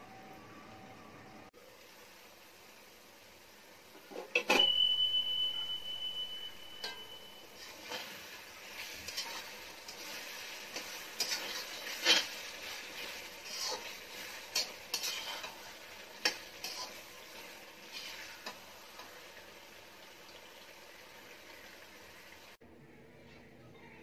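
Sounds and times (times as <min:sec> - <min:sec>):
liver sizzling in gravy: 0:01.6 - 0:22.6
metal spatula scraping a pan: 0:04.1 - 0:19.2.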